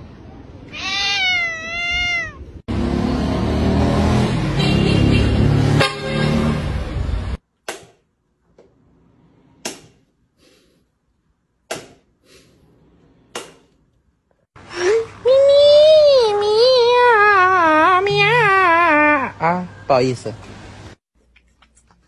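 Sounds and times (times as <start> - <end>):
cat meowing: 0.7 - 2.6.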